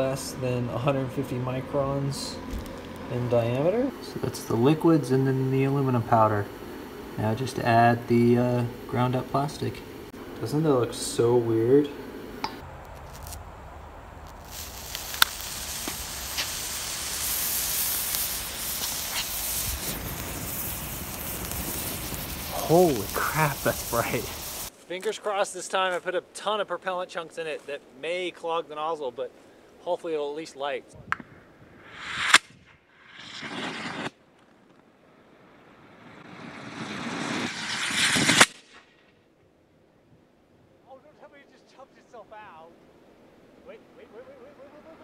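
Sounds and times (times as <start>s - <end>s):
propellant burning with hiss: 0.0s - 24.9s, 31.7s - 34.2s, 35.3s - 38.9s
sharp crack: 0.0s - 25.2s, 31.1s - 39.2s
sharp pops: 2.4s - 6.3s, 12.3s - 13.5s, 14.2s - 24.8s, 31.0s - 34.8s, 35.8s - 39.1s.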